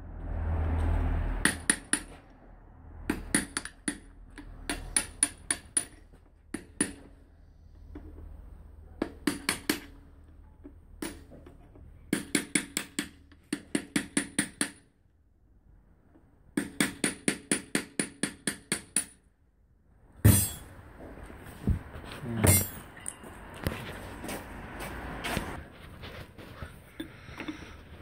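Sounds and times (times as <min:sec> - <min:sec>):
hammer striking metal punch: 0:01.4 - 0:02.2, 0:03.1 - 0:04.1, 0:20.2 - 0:20.7.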